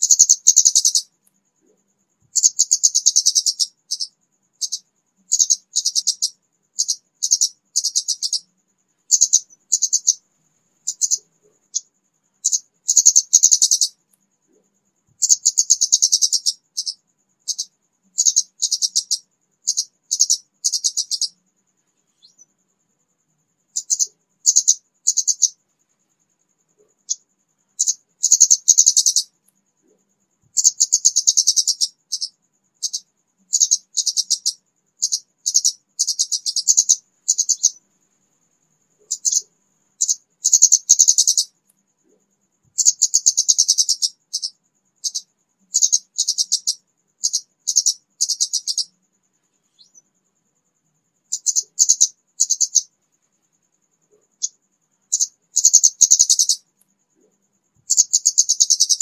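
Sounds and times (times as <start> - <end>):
bird chirping rapidly: 0.0 - 1.1, 2.3 - 8.5, 9.1 - 10.2, 10.8 - 14.0, 15.2 - 21.4, 22.0 - 22.5, 23.7 - 25.6, 27.0 - 29.4, 30.6 - 37.8, 39.0 - 41.6, 42.8 - 49.0, 49.6 - 50.0, 51.3 - 52.9, 54.3 - 56.7, 57.9 - 59.0.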